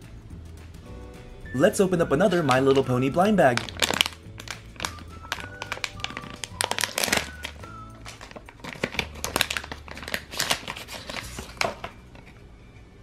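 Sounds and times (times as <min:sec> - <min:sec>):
background music: 0:00.0 - 0:13.0
foil bag crinkling: 0:02.3 - 0:12.4.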